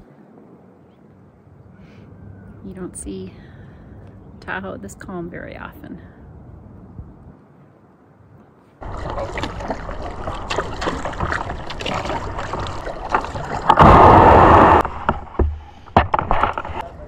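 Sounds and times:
paddle splashing and dripping: 8.8s - 16.8s
loud rush of noise: 13.7s - 15.0s.

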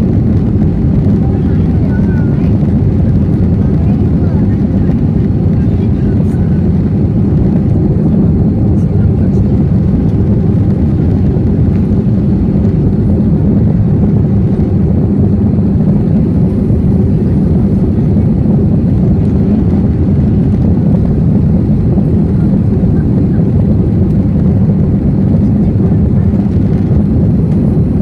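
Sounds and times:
jet engine cabin rumble: 0.0s - 28.0s.

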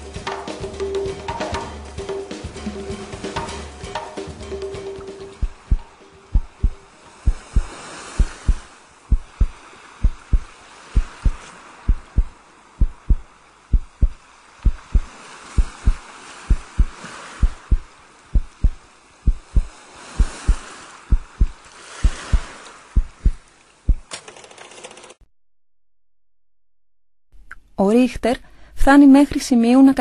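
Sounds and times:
deep dull thumps: 5.4s - 24.1s.

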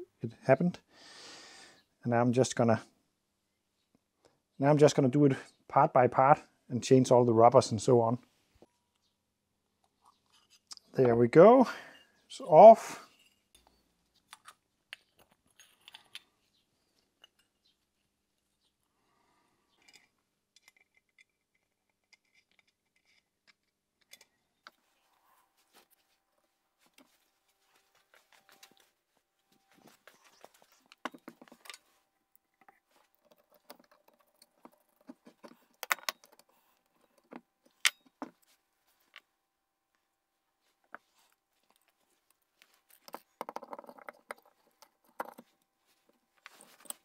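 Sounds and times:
metallic clicks of small parts: 13.5s - 16.3s, 19.7s - 24.8s, 30.9s - 38.3s.

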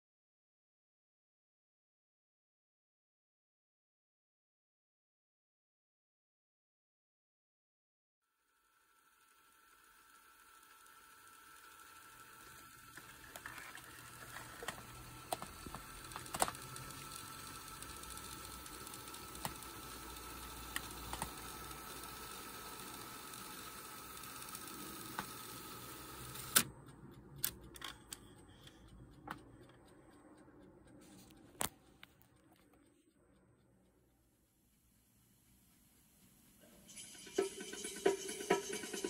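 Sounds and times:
cassette deck mechanism whine: 9.3s - 26.8s.

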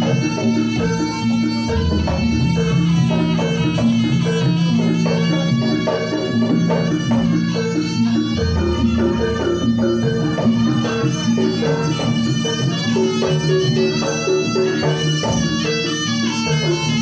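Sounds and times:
metallophone and gong notes: 0.0s - 17.0s
reedy wind instrument melody: 0.0s - 17.0s.

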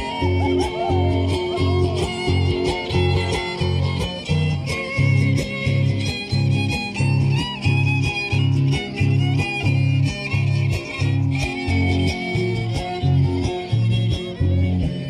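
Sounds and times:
fiddle-led dance music: 0.0s - 15.0s.

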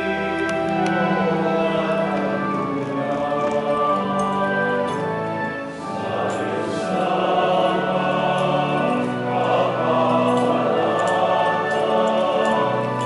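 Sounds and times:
choir singing a hymn: 0.0s - 13.0s.

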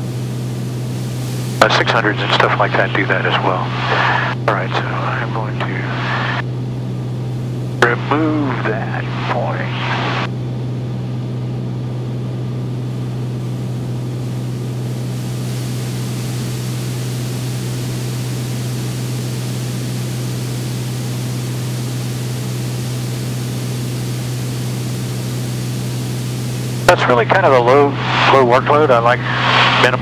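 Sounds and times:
propeller plane engine drone: 0.0s - 30.0s
airflow hissing: 0.9s - 6.4s, 27.7s - 30.0s.

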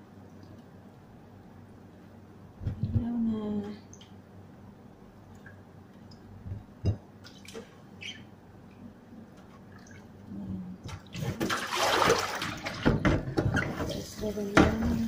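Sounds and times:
small splashes and drips: 5.2s - 6.4s, 7.2s - 12.9s.

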